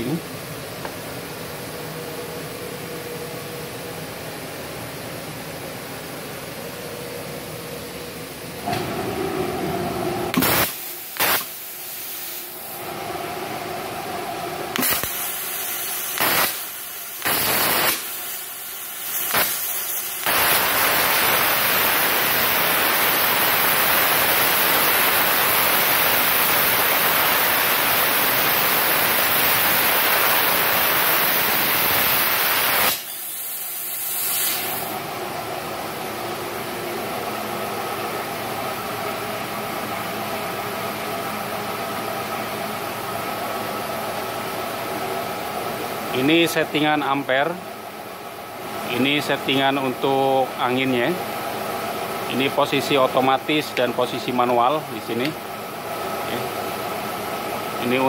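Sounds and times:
machine hum: 0.0 - 33.3
plasma torch hissing: 10.3 - 12.8, 14.7 - 35.0.

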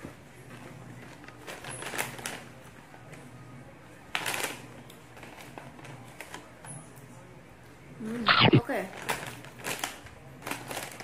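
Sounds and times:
plastic snack bag crinkling: 1.1 - 2.5, 8.9 - 11.0.

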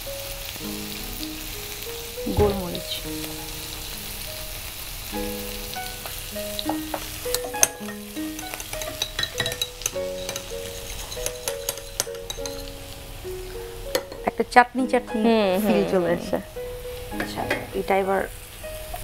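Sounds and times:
soft background music: 0.0 - 19.0
vegetables sizzling in frying pan: 0.0 - 19.0
metal spoon clinking glass bowl: 7.3 - 12.7.

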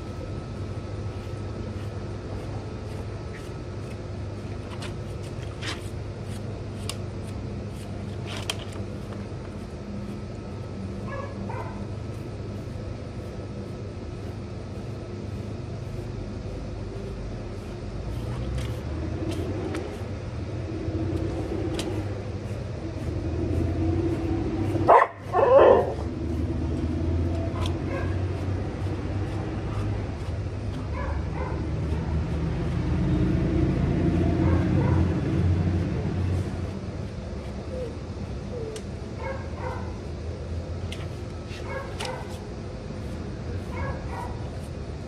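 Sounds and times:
dogs barking and yipping: 11.0 - 11.9, 24.8 - 26.1, 27.5 - 28.2, 30.9 - 32.1, 34.3 - 35.2, 38.6 - 40.0, 41.6 - 42.3, 43.7 - 44.4
low rumble: 18.7 - 24.8.

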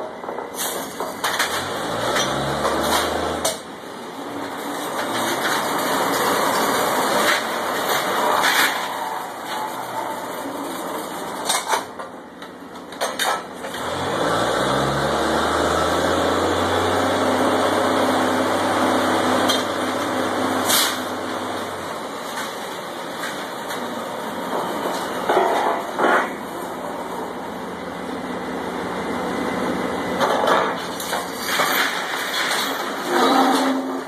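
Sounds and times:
drilling rig engine revving: 1.5 - 3.6, 13.7 - 21.8.

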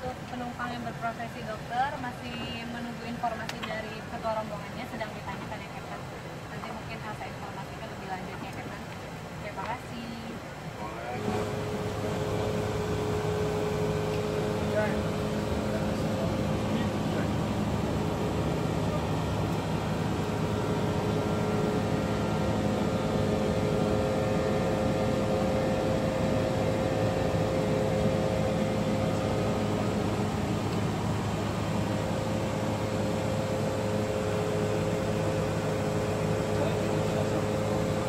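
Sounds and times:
low hum: 11.2 - 38.0.

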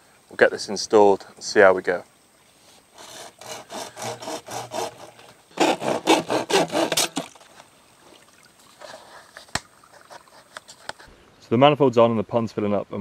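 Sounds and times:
plastic pipe rasping: 3.0 - 7.6.

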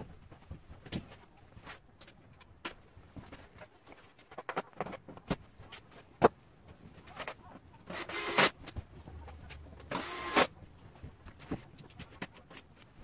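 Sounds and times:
cordless power tool whirring: 7.9 - 8.5, 9.9 - 10.5.

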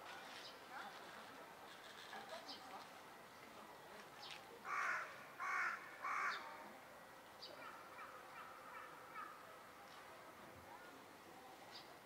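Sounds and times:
crow cawing: 4.7 - 6.4.

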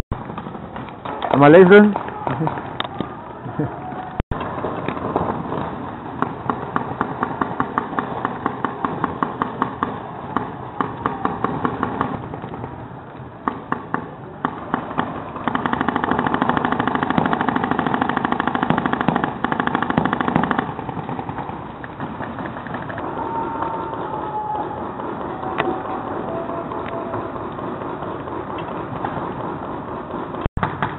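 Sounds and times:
very fast rattle of shots: 4.5 - 12.8, 13.4 - 25.4, 27.3 - 30.9
paintball markers firing: 26.8 - 30.9.

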